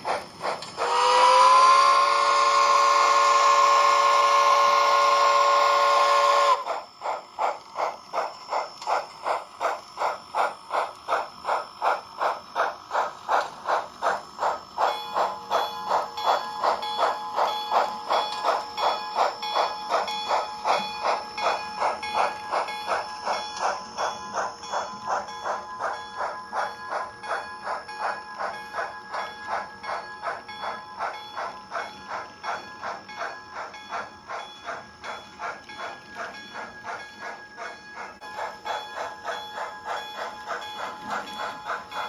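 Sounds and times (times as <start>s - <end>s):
model steam engine chuffing: 0.0s - 42.0s
steam whistle chord: 0.8s - 6.7s.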